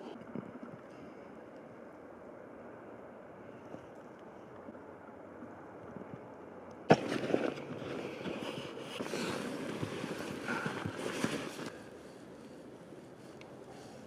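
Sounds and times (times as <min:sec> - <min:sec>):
clothing and gear rustling: 0:06.9 - 0:11.9.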